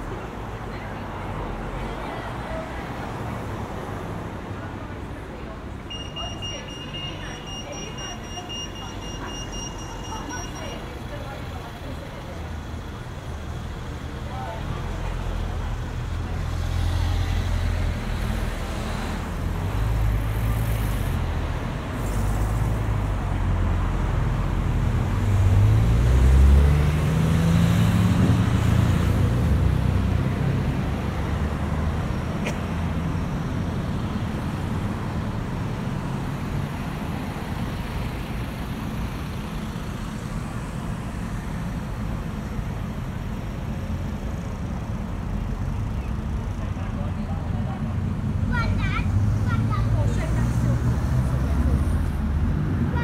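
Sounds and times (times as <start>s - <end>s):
road traffic: 0.0s - 53.0s
vehicle engine accelerating: 14.8s - 36.3s, 36.9s - 53.0s.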